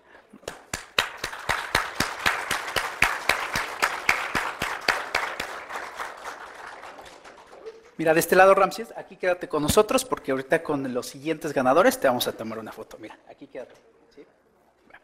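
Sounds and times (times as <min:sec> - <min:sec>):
audience applauding: 0:00.4 - 0:08.0.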